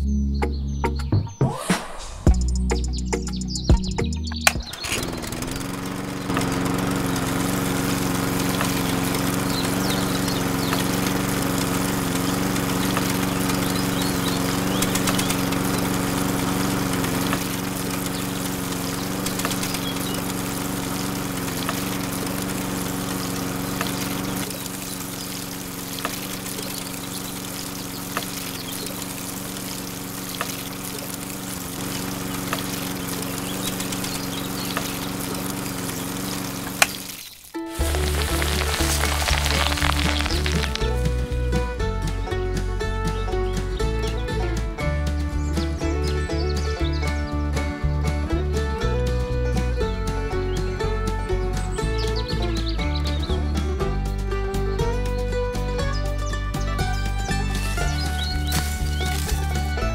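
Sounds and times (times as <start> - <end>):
small pump motor humming: 4.4 - 41.4, 57.1 - 59.9
water splashing onto sand: 4.6 - 41.2, 57.3 - 59.9.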